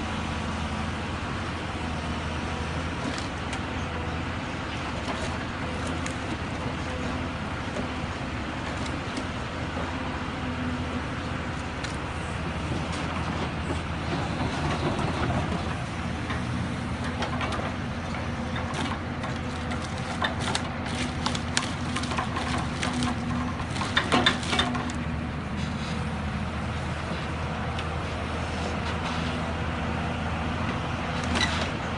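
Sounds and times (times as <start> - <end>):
excavator diesel engine running: 0.0 - 31.9
logs knocking together: 18.5 - 25.0.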